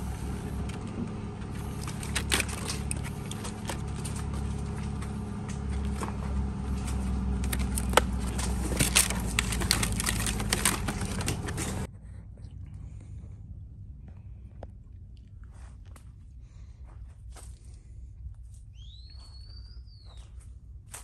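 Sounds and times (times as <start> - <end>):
low mechanical hum: 0.0 - 21.0
plastic containers clicking and rattling: 1.8 - 4.2, 7.4 - 11.9.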